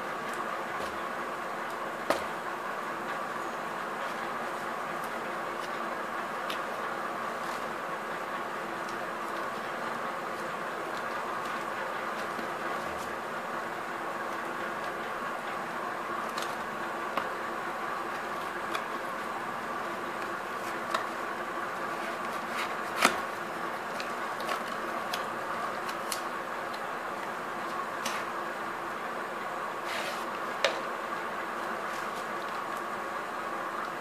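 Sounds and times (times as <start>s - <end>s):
cardboard flaps clicking and tapping: 2.0s - 2.4s, 21.9s - 26.2s.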